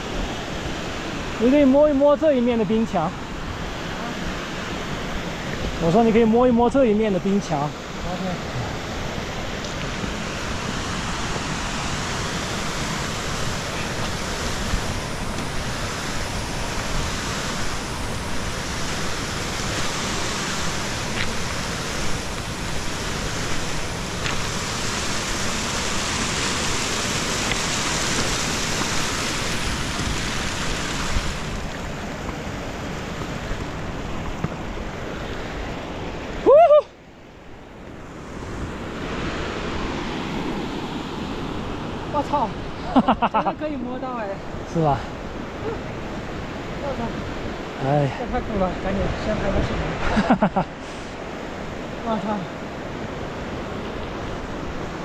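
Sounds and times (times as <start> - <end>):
steady rushing noise: 0.0 - 36.3.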